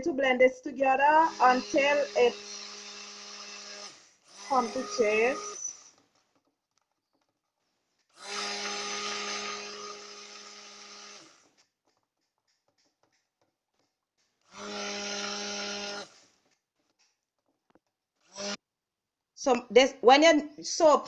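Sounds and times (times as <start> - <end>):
stick blender running: 0.8 - 6.3, 8.1 - 11.6, 14.5 - 16.4, 18.3 - 18.6.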